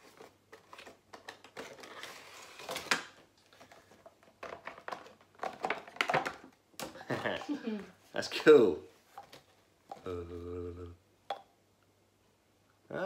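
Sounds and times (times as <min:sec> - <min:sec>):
packaging clicks and rustling scrapes: 0:00.0 - 0:06.4.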